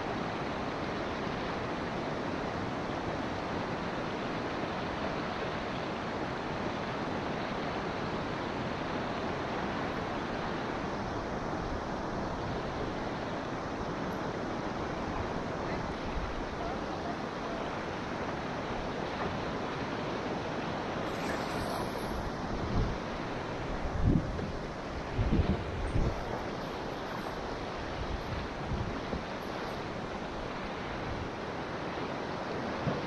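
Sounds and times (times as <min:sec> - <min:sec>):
river whitewater rushing: 0:00.0 - 0:33.0.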